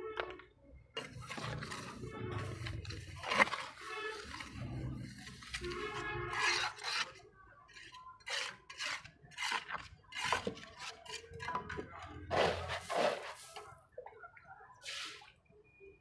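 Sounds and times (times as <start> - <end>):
metal scoop scraping wet cement: 1.0 - 13.8.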